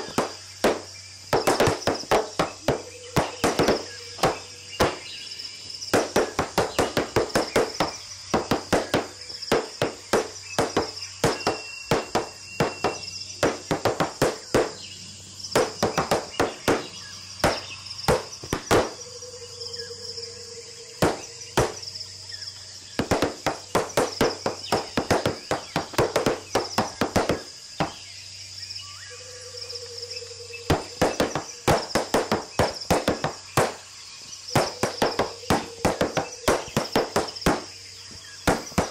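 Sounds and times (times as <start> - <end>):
high insect chirring: 0.0 - 38.9
tap shoes on wooden boards: 6.0 - 14.8, 15.6 - 18.9, 23.0 - 28.0, 30.7 - 33.8, 34.6 - 37.7.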